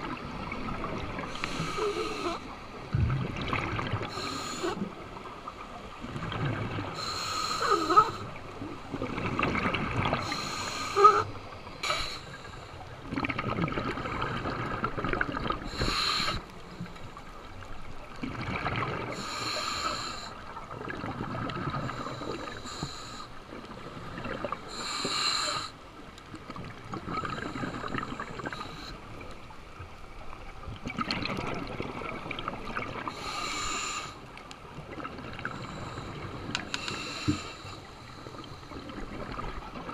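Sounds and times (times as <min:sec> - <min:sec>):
diver breathing through regulator: 0:01.3 - 0:02.5, 0:04.0 - 0:04.9, 0:07.0 - 0:08.4, 0:10.2 - 0:12.8, 0:15.7 - 0:17.0, 0:19.1 - 0:20.4, 0:21.8 - 0:23.4, 0:24.7 - 0:25.8, 0:33.1 - 0:34.2, 0:35.4 - 0:38.8
exhaled bubbles rushing: 0:02.8 - 0:04.2, 0:08.9 - 0:10.2, 0:13.0 - 0:15.8, 0:18.1 - 0:19.2, 0:30.8 - 0:33.1.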